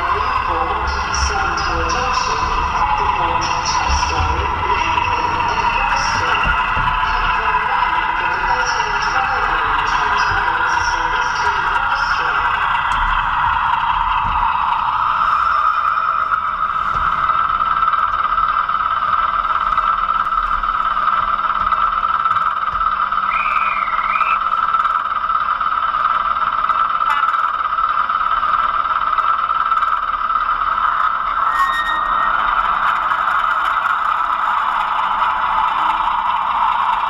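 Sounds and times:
model train engine hum: 0.0 - 37.0
short wavering chirp: 23.3 - 24.4.

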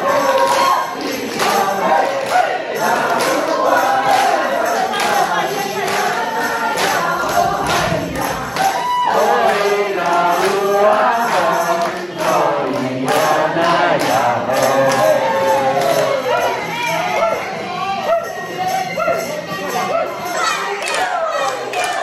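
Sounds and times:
steady beat: 0.0 - 16.4
group of voices singing: 0.0 - 22.0.

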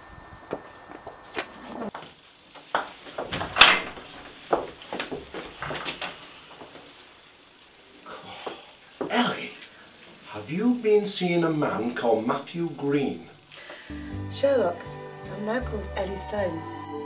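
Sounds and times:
footsteps: 0.4 - 7.1.

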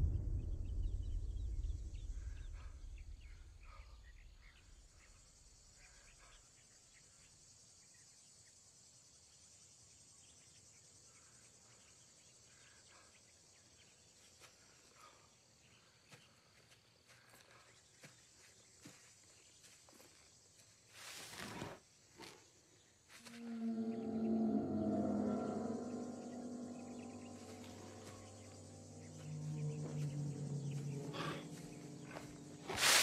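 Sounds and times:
explosion rumble: 0.0 - 4.1
high insect buzz: 20.6 - 33.0
birds chirping: 22.7 - 33.0.

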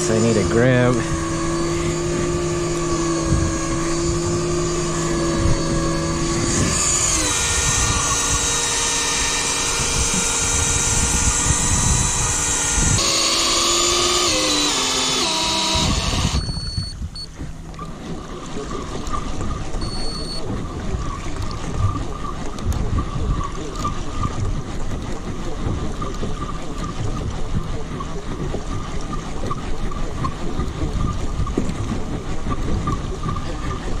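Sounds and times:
electric reel motor whining: 0.0 - 17.0.

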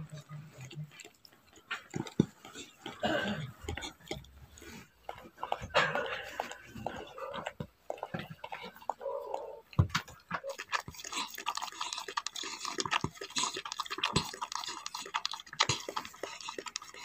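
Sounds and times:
dog licking and chewing: 0.0 - 17.0.

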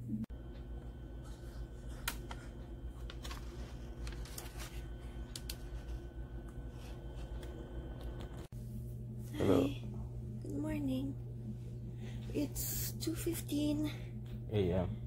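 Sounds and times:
low electrical hum: 0.0 - 15.0
paper crinkling and tapping: 1.8 - 8.5.

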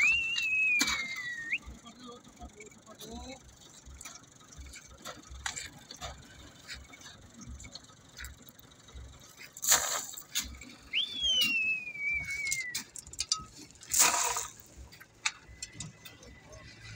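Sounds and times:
falling whistle: 0.0 - 1.6, 10.9 - 12.8
gravel rushing: 0.0 - 2.1, 3.7 - 16.9
stone clinking: 12.2 - 16.7.

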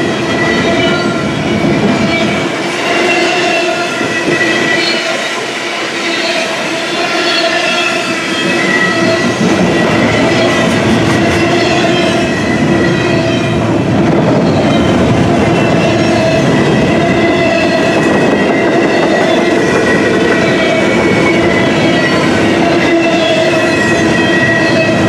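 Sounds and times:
wheels squealing: 0.0 - 13.6, 14.2 - 25.0
train wheels clattering over rail joints: 8.1 - 25.0.

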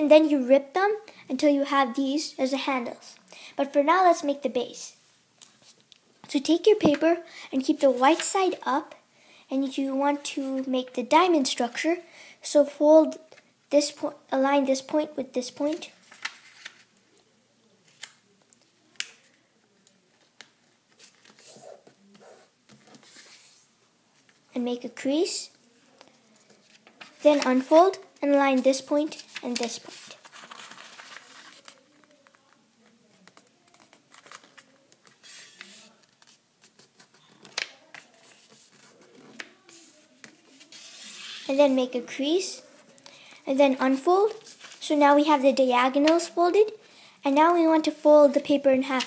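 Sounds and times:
paper crinkling and rustling: 15.7 - 17.0, 20.1 - 23.6, 26.0 - 27.7, 29.1 - 41.5, 44.2 - 44.8
paper clicks and snaps: 18.0 - 19.2, 37.4 - 38.1.

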